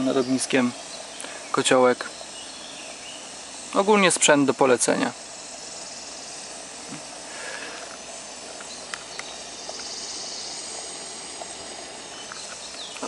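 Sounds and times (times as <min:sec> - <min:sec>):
gas stove hissing: 0:00.0 - 0:13.0
faint ticks: 0:08.6 - 0:10.0, 0:10.6 - 0:11.6.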